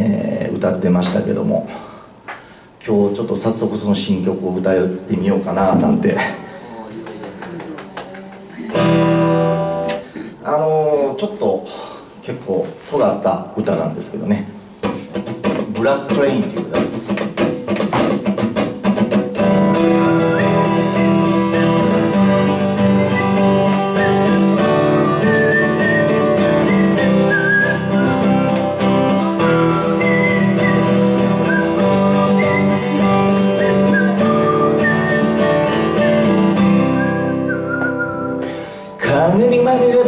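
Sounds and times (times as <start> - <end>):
acoustic guitar strumming: 8.7 - 10.1, 14.8 - 40.0.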